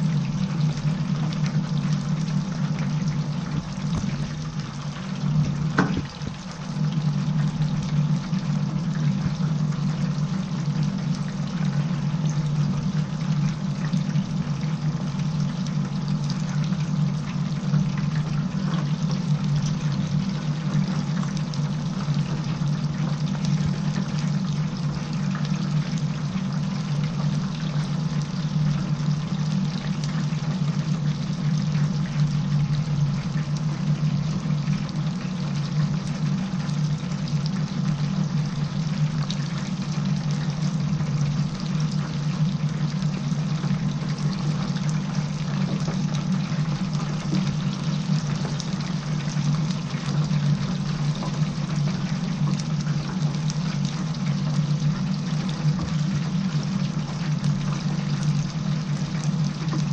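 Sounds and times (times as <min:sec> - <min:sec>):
low machine hum: 0:00.0 - 0:59.9
oil bubbling and crackling: 0:00.0 - 0:59.9
brief knock: 0:05.8 - 0:06.1.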